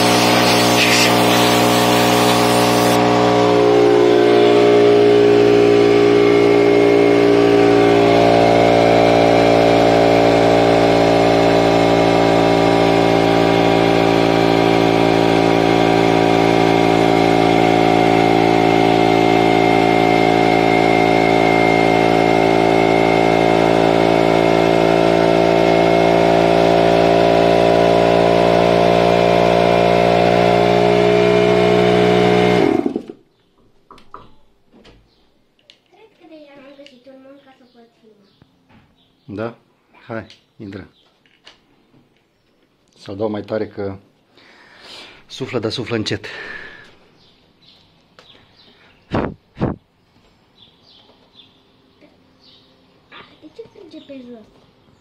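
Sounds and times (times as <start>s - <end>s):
air compressor running: 0.0s - 33.2s.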